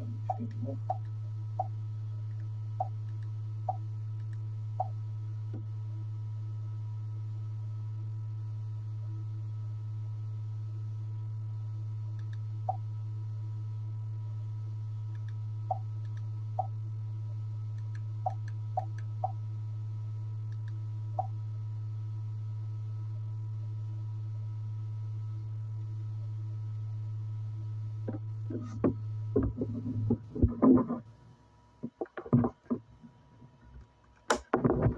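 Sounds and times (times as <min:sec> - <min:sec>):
projector humming: 0:00.0 - 0:34.9.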